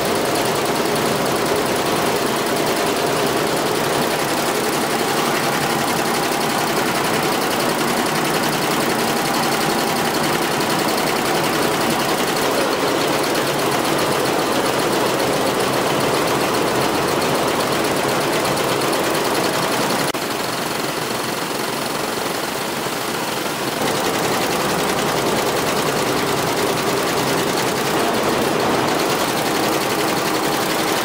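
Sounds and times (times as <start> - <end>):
embroidery machine stitching: 0.0 - 31.0.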